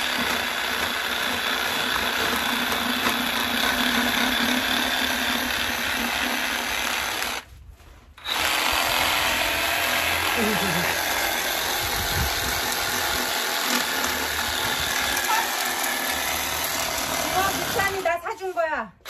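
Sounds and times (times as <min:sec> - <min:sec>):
reciprocating saw cutting fish: 0:08.2 - 0:18.0.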